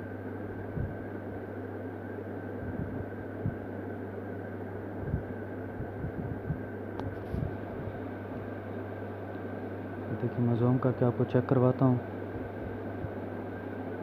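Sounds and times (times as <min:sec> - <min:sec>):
low electrical hum: 0:00.0 - 0:14.0
soft low thumps: 0:00.6 - 0:01.0, 0:02.6 - 0:03.7, 0:05.0 - 0:07.6.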